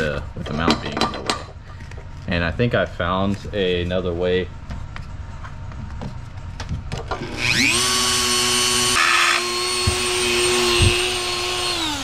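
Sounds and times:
rotary tool whining: 0:07.1 - 0:12.0
cutting wheel grinding metal: 0:07.2 - 0:12.0.

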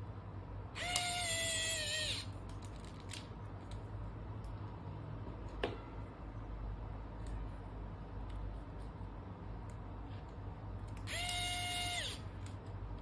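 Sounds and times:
electric screwdriver whine: 0:11.1 - 0:12.3.

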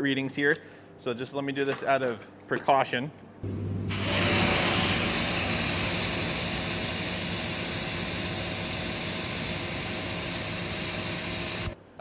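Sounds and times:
electric motor and pump humming: 0:03.5 - 0:11.8
high-pressure water jet hissing: 0:03.9 - 0:11.8.

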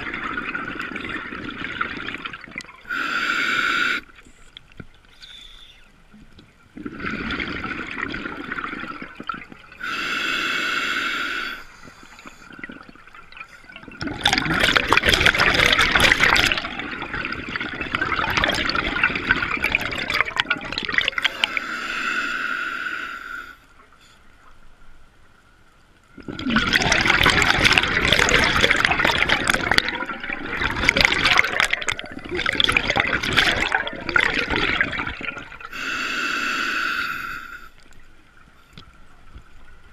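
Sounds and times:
bubbling exhaust underwater: 0:00.0 - 0:04.1, 0:06.8 - 0:23.5, 0:26.2 - 0:37.7
scuba regulator inhalation hiss: 0:02.9 - 0:04.2, 0:05.1 - 0:05.8, 0:09.8 - 0:12.6, 0:21.2 - 0:23.6, 0:35.7 - 0:37.8.

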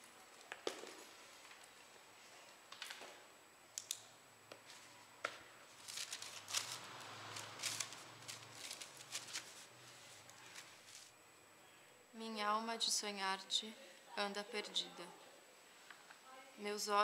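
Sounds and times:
paper napkins rustling: 0:05.7 - 0:11.1.

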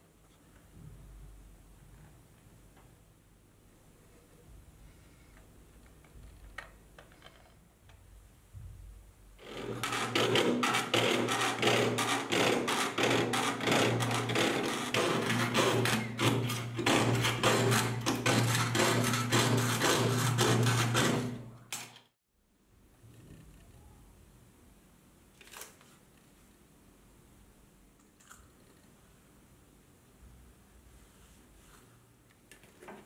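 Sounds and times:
saw cutting brass sheet: 0:09.4 - 0:21.6.

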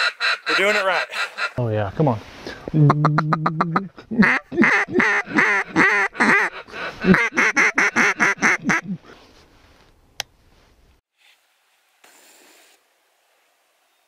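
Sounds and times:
duck call quacks: 0:00.0 - 0:01.6, 0:03.1 - 0:08.8.

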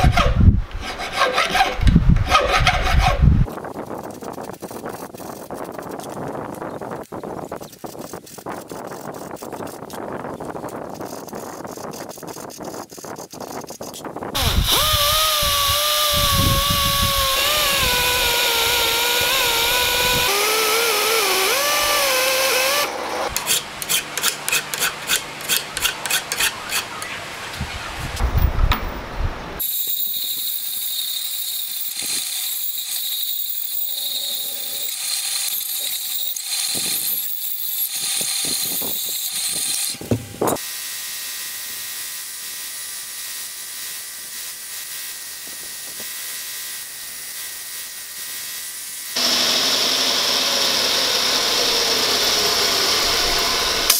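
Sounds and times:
bandsaw cutting steel: 0:00.0 - 0:03.3, 0:14.4 - 0:27.1, 0:29.6 - 0:53.9
power tool whine: 0:14.4 - 0:24.0, 0:29.6 - 0:53.9
hand file strokes on steel: 0:23.2 - 0:27.0.

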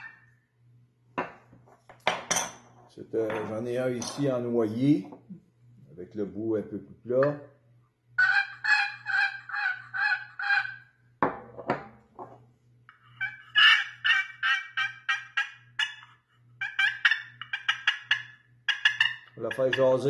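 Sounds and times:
turkey call clucking: 0:08.2 - 0:11.0, 0:12.9 - 0:20.0
turkey pot call yelping: 0:08.2 - 0:11.0, 0:12.9 - 0:19.9.

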